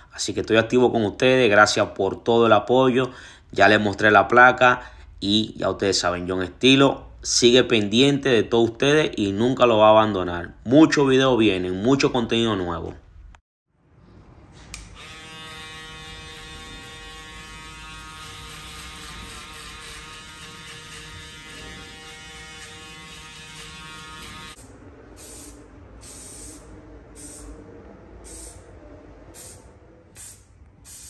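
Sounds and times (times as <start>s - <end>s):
electric hair clipper buzzing: 14.8s - 24.6s.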